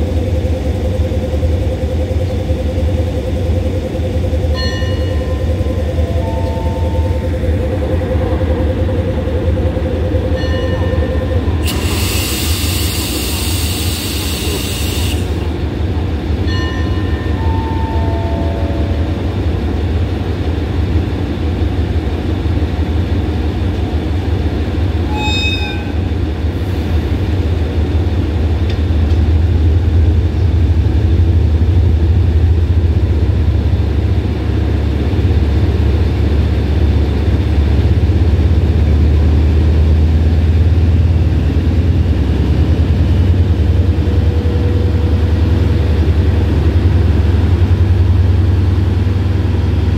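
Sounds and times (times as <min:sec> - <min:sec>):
locomotive engine idling: 0:00.0 - 0:25.0
descending chime notes: 0:04.5 - 0:11.6.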